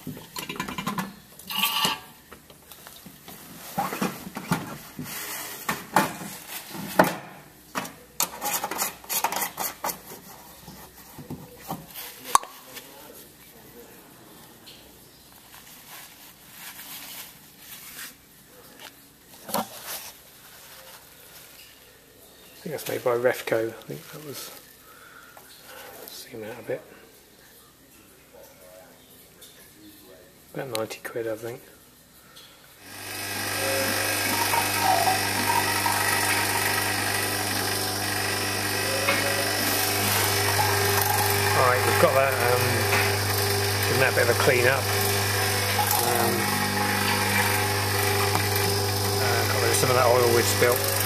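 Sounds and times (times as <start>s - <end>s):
rustling handling noise: 2.6s - 7.0s, 8.4s - 13.6s, 15.2s - 26.2s
motor-driven machine humming: 32.8s - 51.0s.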